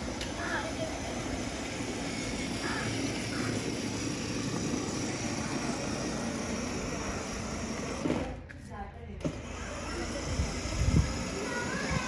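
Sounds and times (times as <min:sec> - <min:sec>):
plastic wheels rolling on tiles: 0:00.0 - 0:08.4, 0:09.2 - 0:12.0
toy car electric motors: 0:00.0 - 0:08.4, 0:09.2 - 0:12.0.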